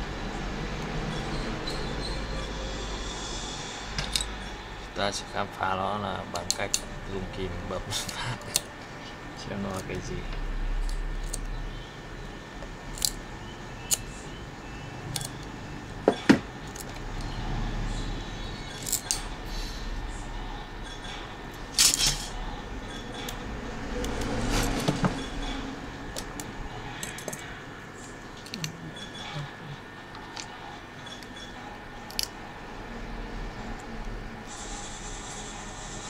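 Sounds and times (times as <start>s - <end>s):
cutting pliers snapping circuit board: 12.9s - 13.2s, 13.9s - 14.1s, 15.1s - 15.5s
small metal parts clinking: 18.7s - 19.3s.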